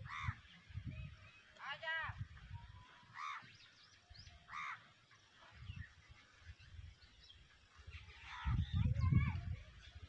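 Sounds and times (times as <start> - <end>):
crow cawing: 0.0 - 0.4, 3.2 - 3.5, 4.5 - 4.8.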